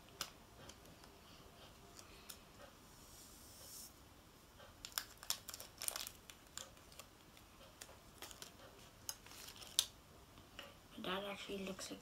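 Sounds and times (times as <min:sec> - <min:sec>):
plastic sachet crinkling: 0:04.8 - 0:07.2, 0:08.2 - 0:10.0.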